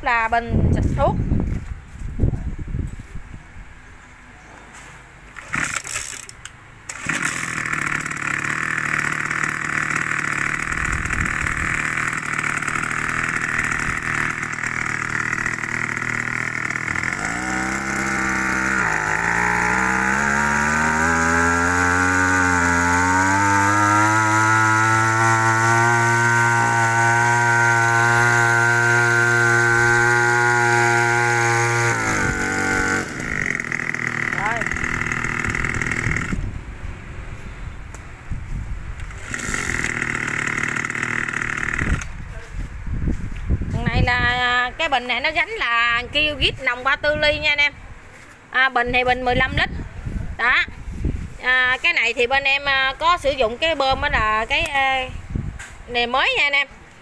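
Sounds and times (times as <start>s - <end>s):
starter cord pulls: 5.3s - 36.4s, 39.0s - 42.2s
small two-stroke engine running: 5.3s - 36.6s, 39.0s - 42.2s.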